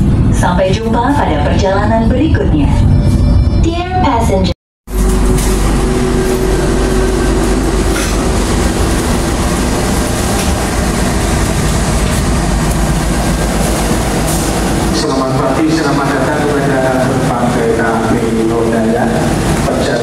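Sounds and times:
train wheels rumbling on rails: 4.9s - 20.0s
clickety-clack of train wheels: 7.9s - 20.0s.

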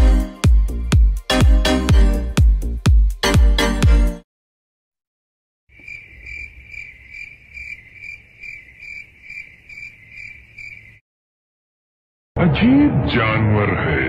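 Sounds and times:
cricket chirping: 5.7s - 11.0s.

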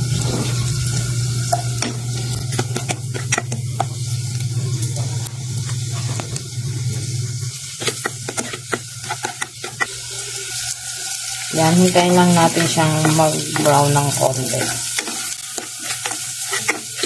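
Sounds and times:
low steady hum: 0.0s - 10.4s
food sizzling in a pot: 0.0s - 17.0s
spatula scraping a pot: 1.7s - 4.0s, 7.6s - 10.0s, 12.2s - 17.0s.

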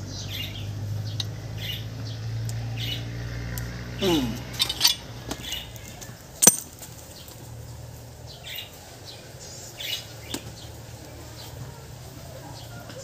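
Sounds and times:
metal tools clicking: 4.2s - 5.1s, 6.4s - 6.8s.

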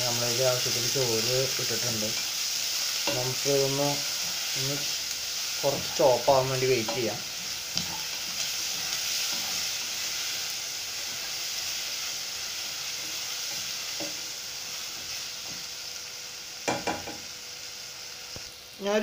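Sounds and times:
onions sizzling in hot oil: 0.0s - 19.0s
spatula tapping and scraping pan: 16.6s - 17.3s.

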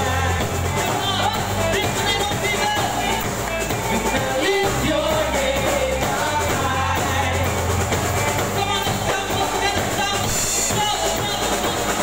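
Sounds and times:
bass guitar: 0.0s - 12.0s
drum kit: 0.0s - 12.0s
electric guitars: 0.0s - 12.0s
person singing: 0.0s - 12.0s.

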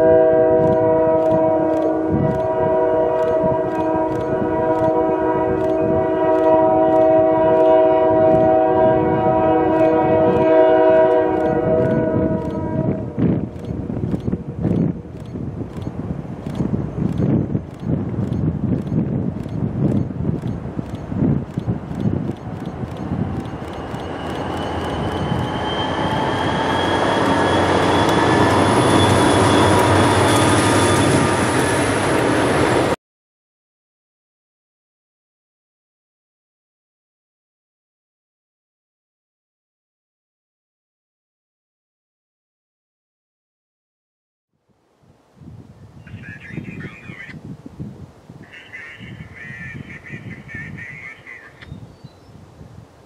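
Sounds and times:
locomotive air horn chord: 0.0s - 13.2s
freight train rumble: 0.0s - 33.0s
regular clicks: 0.6s - 2.5s, 3.2s - 5.0s, 5.6s - 7.1s, 13.5s - 25.4s
high wheel squeal: 22.6s - 32.7s.

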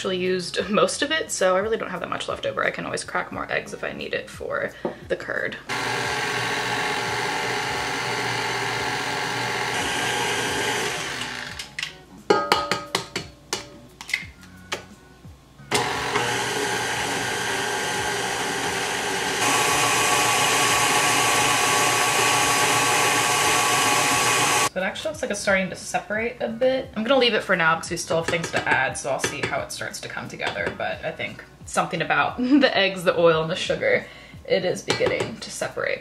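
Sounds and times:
stand mixer running: 5.7s - 11.4s, 15.7s - 24.7s
beater knocking against steel bowl: 12.3s - 13.7s.

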